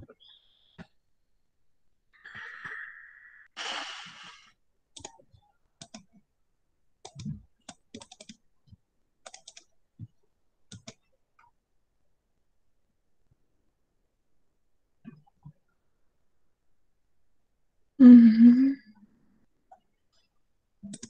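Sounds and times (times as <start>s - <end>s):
short burst of hiss: 3.6s - 4.5s
computer mouse clicks: 5.0s - 6.2s, 7.0s - 8.4s, 9.2s - 9.7s, 10.7s - 11.5s.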